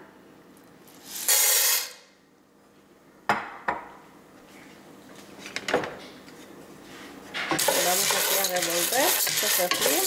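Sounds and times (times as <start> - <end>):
pasta frying in oil: 7.6 - 10.0.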